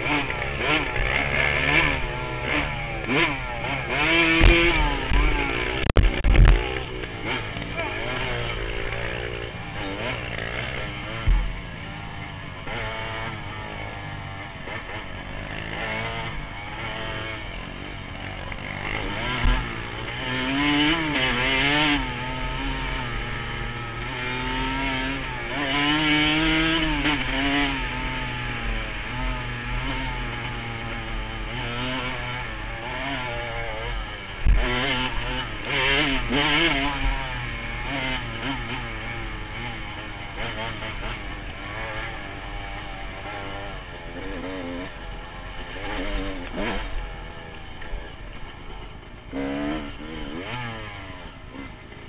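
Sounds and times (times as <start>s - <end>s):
dirt bike engine revving: 0.0s - 52.0s.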